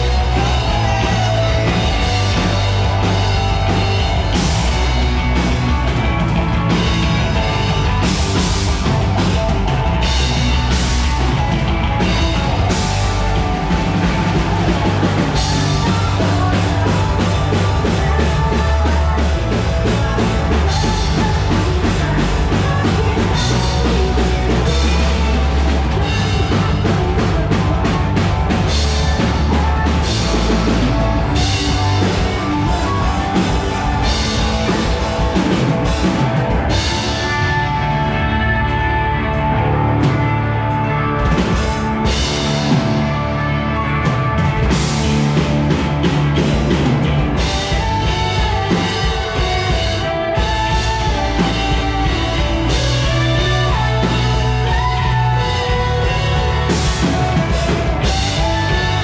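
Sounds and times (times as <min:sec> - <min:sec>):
bass guitar: 0:00.0 - 0:59.0
drum kit: 0:00.0 - 0:59.0
electric guitar: 0:00.0 - 0:59.0
keyboard: 0:00.0 - 0:59.0.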